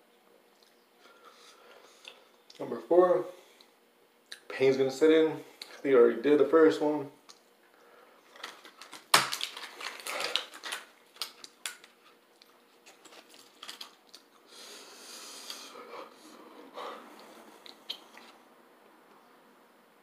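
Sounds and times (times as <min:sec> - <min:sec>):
foil packet snapping: 0:08.3 - 0:12.0, 0:12.9 - 0:14.2
foil packet crinkling: 0:08.3 - 0:14.3.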